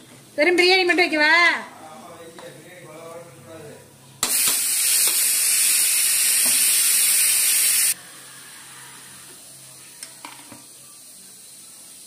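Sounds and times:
loud steady hiss: 0:04.2 - 0:08.4, 0:09.1 - 0:12.0.

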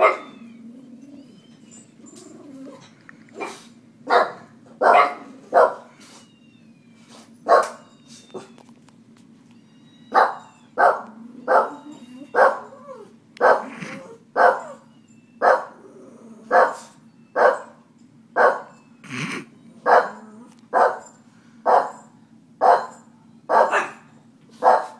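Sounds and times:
dog barking sharply: 0:03.4 - 0:05.9, 0:07.5 - 0:07.8, 0:13.4 - 0:13.8, 0:22.6 - 0:24.0, 0:24.6 - 0:24.9.

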